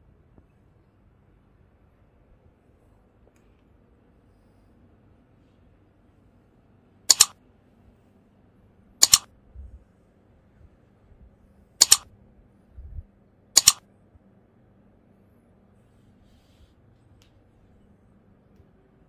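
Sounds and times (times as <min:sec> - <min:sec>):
mouse double clicks: 0:07.1 - 0:07.4, 0:09.0 - 0:09.3, 0:11.8 - 0:12.1, 0:13.6 - 0:13.8.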